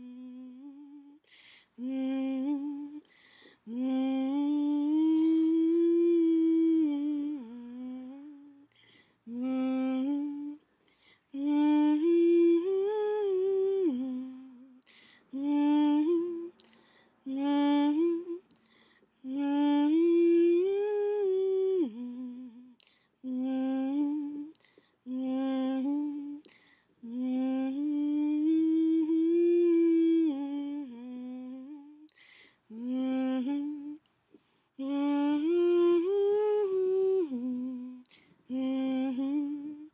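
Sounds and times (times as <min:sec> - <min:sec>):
person humming a tune: 0:00.0 - 0:01.2.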